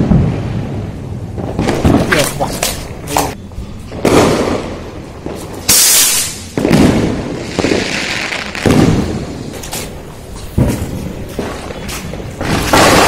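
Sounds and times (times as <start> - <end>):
firecracker bangs: 0.0 - 13.0
rocket firework hissing: 4.1 - 10.0.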